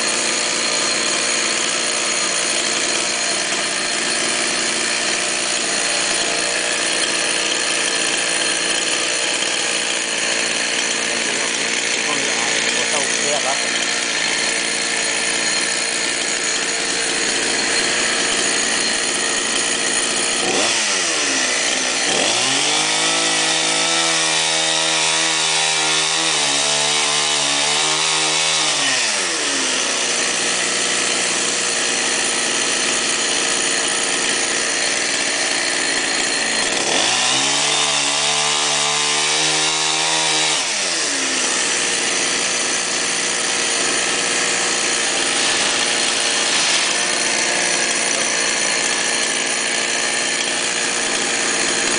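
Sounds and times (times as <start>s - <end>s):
chainsaw cutting and idling: 0.0s - 51.9s.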